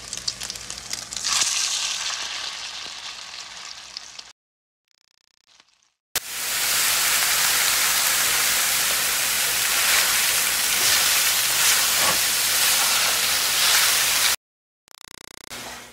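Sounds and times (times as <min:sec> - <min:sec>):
barbecue grill sizzling: 0:00.0 - 0:04.3, 0:06.2 - 0:14.4.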